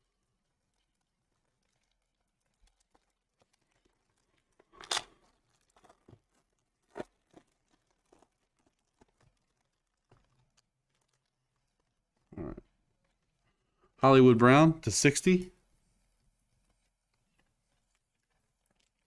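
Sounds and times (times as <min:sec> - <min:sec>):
foil crinkling: 0:00.7 - 0:12.2.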